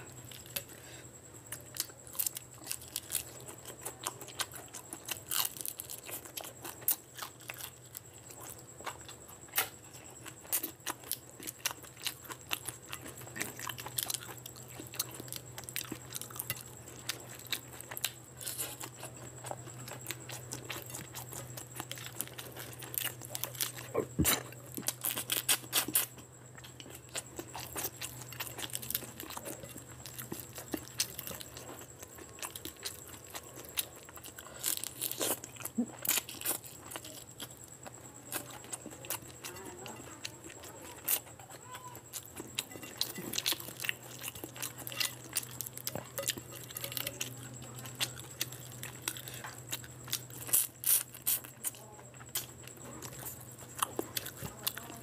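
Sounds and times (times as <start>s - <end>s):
faint steady hum: 0.0s - 55.0s
wet chewing: 0.0s - 55.0s.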